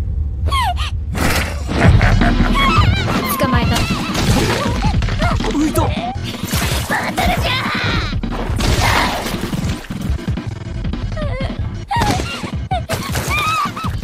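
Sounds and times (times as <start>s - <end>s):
thuds and crashing hits: 1.1s - 11.1s
strained voices: 1.4s - 9.4s
dramatic background music: 1.5s - 14.0s.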